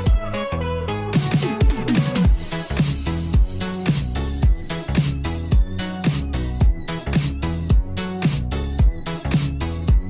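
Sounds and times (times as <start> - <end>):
sustained bass line: 0.0 - 10.0
kick drum beat: 1.2 - 3.6, 4.4 - 5.8, 6.6 - 6.9, 7.7 - 8.0, 8.8 - 9.1.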